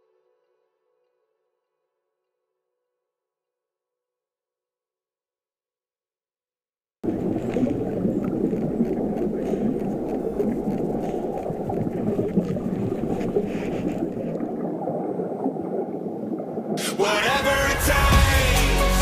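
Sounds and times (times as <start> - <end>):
muffled rumbling: 7.0 - 16.5.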